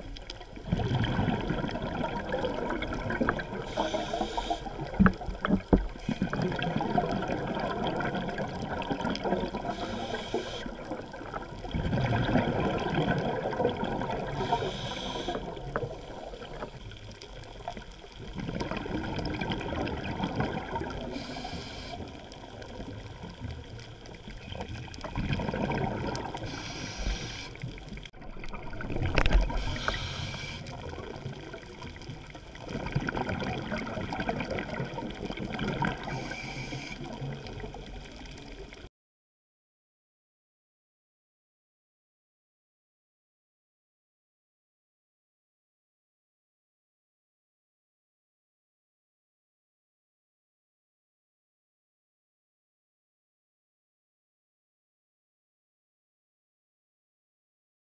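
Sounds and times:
exhaled bubbles gurgling: 0:00.0 - 0:38.9
regulator inhalation hiss: 0:03.7 - 0:04.9, 0:09.7 - 0:10.8, 0:14.4 - 0:15.6, 0:21.1 - 0:22.2, 0:26.4 - 0:27.8, 0:29.5 - 0:30.8, 0:36.1 - 0:37.1.

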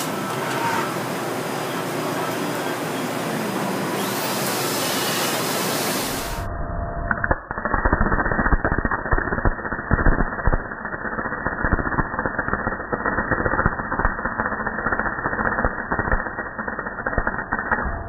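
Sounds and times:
welder crackling and popping: 0:04.2 - 0:18.0.

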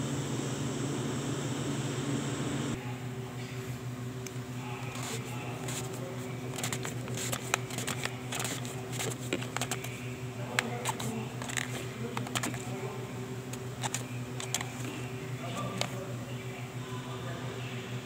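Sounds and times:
steady low hum: 0:00.0 - 0:18.0
plastic clicks and rattles: 0:10.6 - 0:12.6, 0:13.5 - 0:14.9.

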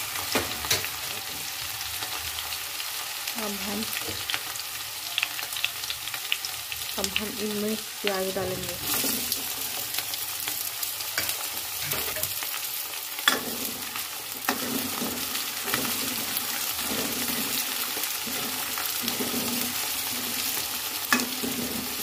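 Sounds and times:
onions sizzling in oil: 0:00.0 - 0:22.0
spoon stirring and knocking pan: 0:11.1 - 0:12.4, 0:13.2 - 0:22.0.

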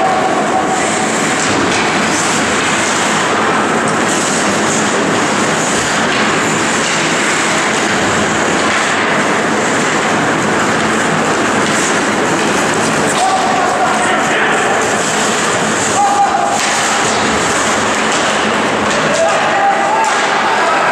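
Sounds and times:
hockey sticks: 0:00.0 - 0:20.9
skates on ice: 0:10.7 - 0:20.9.

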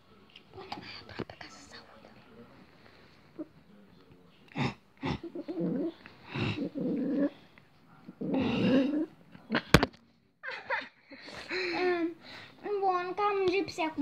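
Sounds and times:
small dog growling: 0:04.5 - 0:07.5, 0:08.1 - 0:09.2.

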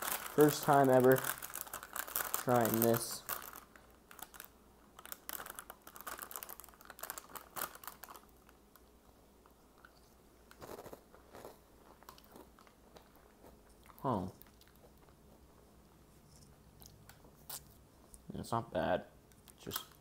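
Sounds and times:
crunching and chewing breadstick: 0:09.7 - 0:15.7.

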